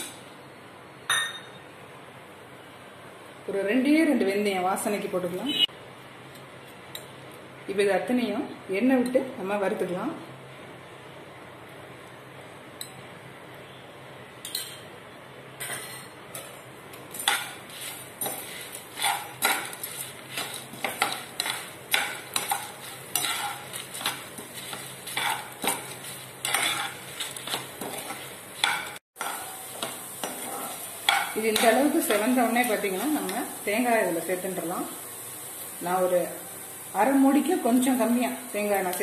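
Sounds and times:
spices sizzling in oil: 0:16.4 - 0:39.0
spatula scraping a pan: 0:17.1 - 0:32.3.

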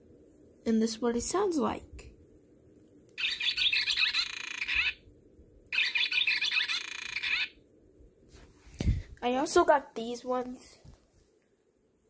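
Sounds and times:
toy playing recorded bird call: 0:03.2 - 0:05.1, 0:05.7 - 0:07.6.

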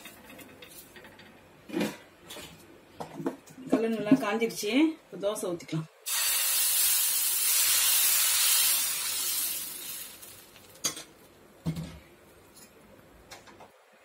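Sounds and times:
batter sizzling on griddle: 0:06.1 - 0:11.3.

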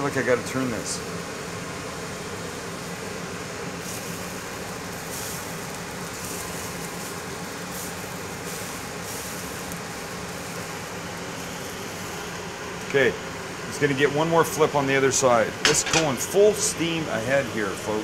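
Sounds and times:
exhaust fan humming: 0:00.0 - 0:18.0
noodles sizzling in a pan: 0:01.3 - 0:14.5.

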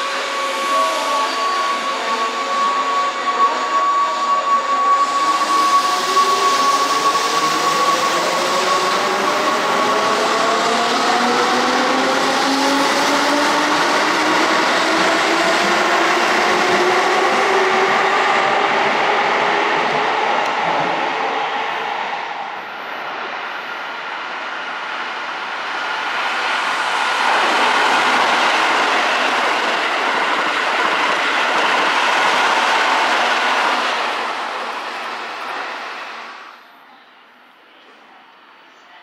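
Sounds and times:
steady high tone: 0:00.0 - 0:10.8.

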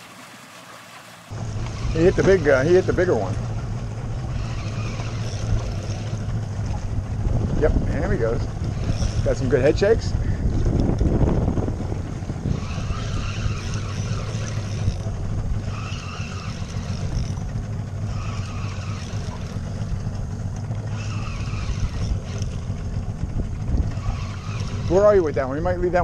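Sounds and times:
outboard motor running: 0:00.0 - 0:26.0
water rushing: 0:00.0 - 0:26.0
wind: 0:00.0 - 0:26.0
short high-pitched whirs: 0:01.6 - 0:03.4, 0:04.2 - 0:06.8, 0:08.6 - 0:09.6, 0:12.4 - 0:19.9, 0:20.8 - 0:22.7, 0:23.8 - 0:25.2.

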